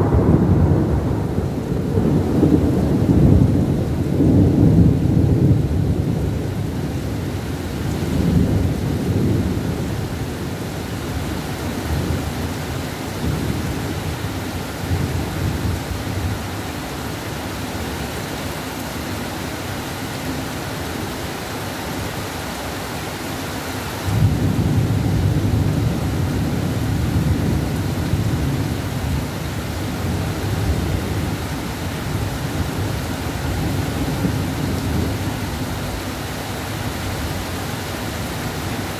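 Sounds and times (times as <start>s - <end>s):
thunder rumbling: 0.0s - 7.1s, 24.1s - 36.0s
heavy rain pouring: 0.0s - 38.9s.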